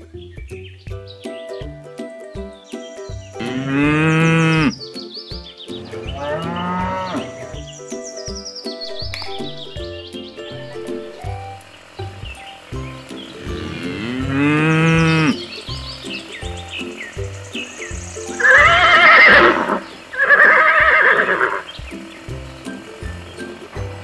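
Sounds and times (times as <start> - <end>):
background music with steady beat: 0.0 - 24.0
farm animal calls: 3.4 - 4.9, 5.8 - 7.9, 13.3 - 16.7, 17.8 - 21.8.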